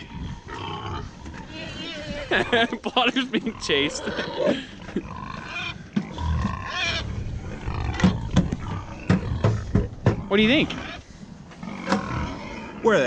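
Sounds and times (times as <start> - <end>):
pigs grunting: 0.0 - 13.0.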